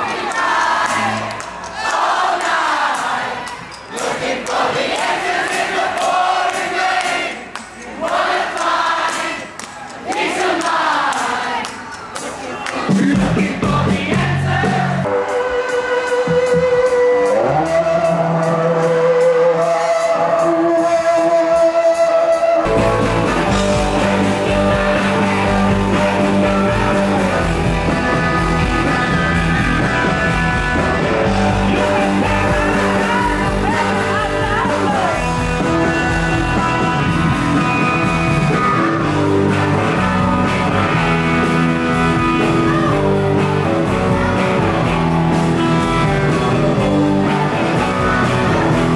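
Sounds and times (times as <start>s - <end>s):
rock band playing live: 0.0s - 1.8s, 11.2s - 48.9s
man singing lead vocal: 12.8s - 22.4s, 23.4s - 40.5s
electric guitar: 12.9s - 48.9s.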